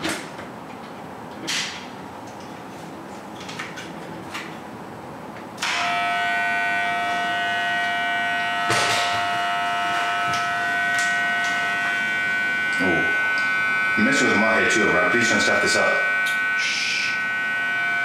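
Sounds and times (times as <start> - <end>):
electric hair clippers buzzing: 5.6 - 18.0.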